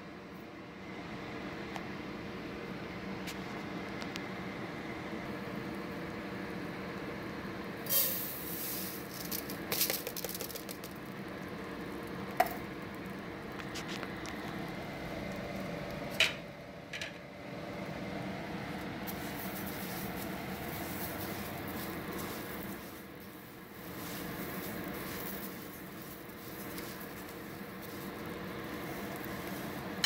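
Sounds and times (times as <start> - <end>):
butter sizzling in a pot: 6.3 - 15.4, 19.0 - 30.0
dry rice pattering into a pot: 7.8 - 16.0, 18.8 - 30.0.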